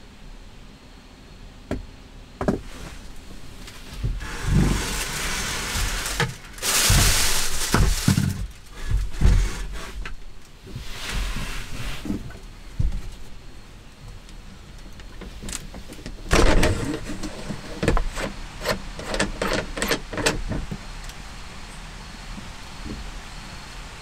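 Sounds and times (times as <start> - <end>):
rustling and sliding: 2.5 - 13.5, 15.2 - 20.9.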